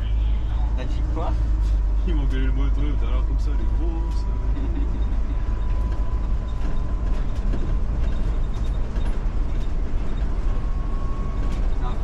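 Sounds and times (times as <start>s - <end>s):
bus engine and road rumble: 0.0s - 12.0s.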